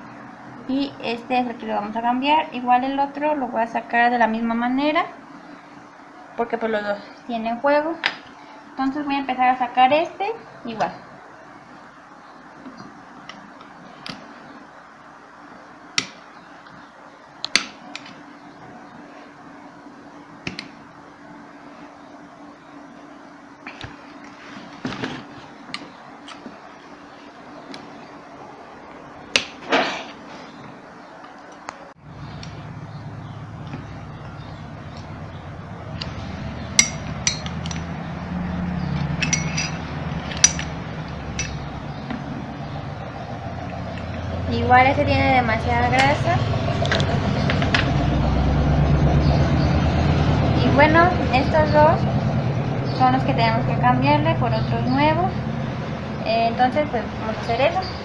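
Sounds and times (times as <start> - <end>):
faint steady hum: 0.0 - 58.0
screwdriver clinking on metal: 36.8 - 37.9, 39.2 - 39.8, 40.4 - 40.7, 41.4 - 41.6.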